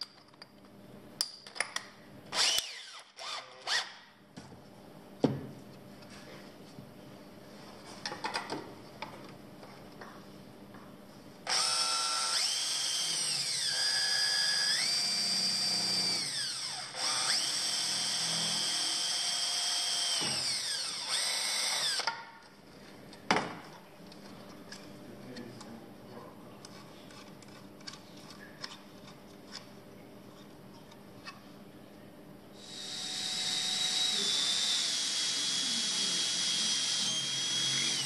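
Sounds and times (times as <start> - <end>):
cordless drill whining: 2.3 - 4.0, 11.5 - 22.1, 32.6 - 38.0.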